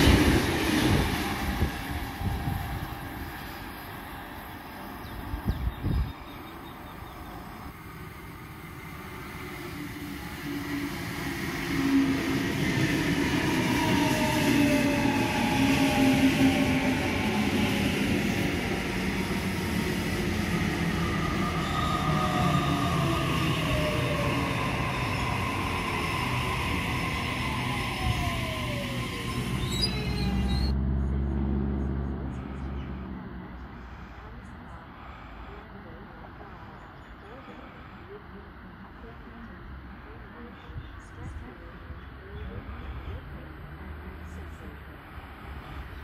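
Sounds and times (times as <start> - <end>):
electric train humming: 0.0 - 35.6
wheels rumbling on rails: 0.0 - 46.0.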